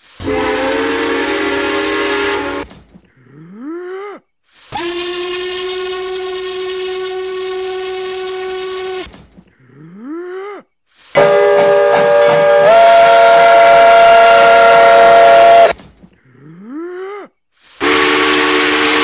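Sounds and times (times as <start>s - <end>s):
steam hiss: 0.0s - 0.4s, 17.6s - 18.0s
steam locomotive whistle: 0.2s - 2.7s, 4.7s - 9.1s, 11.2s - 15.8s, 17.8s - 19.0s.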